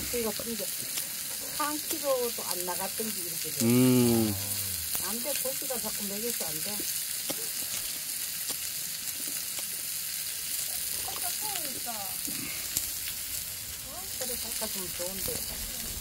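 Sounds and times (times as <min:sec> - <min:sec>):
meat sizzling on griddle: 0:00.0 - 0:16.0
faint voices: 0:03.6 - 0:05.0.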